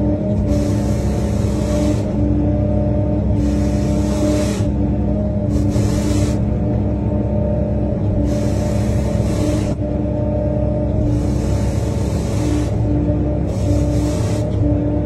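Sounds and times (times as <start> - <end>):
excavator engine humming: 0.0 - 15.0
sweeper brush on wet road: 0.4 - 2.3, 3.1 - 4.8, 5.4 - 6.6, 8.1 - 9.9, 10.9 - 15.0
hydraulic hiss: 0.5 - 2.2, 3.3 - 4.7, 5.4 - 6.4, 8.2 - 9.8, 11.0 - 12.9, 13.5 - 14.6.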